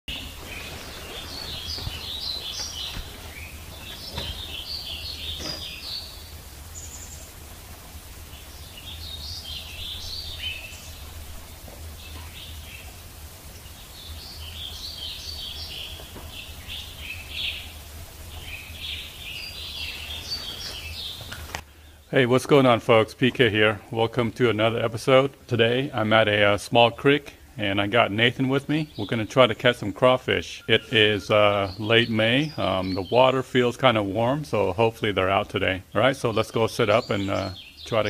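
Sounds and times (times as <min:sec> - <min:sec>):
songbirds chirping: 0:00.0 - 0:38.0.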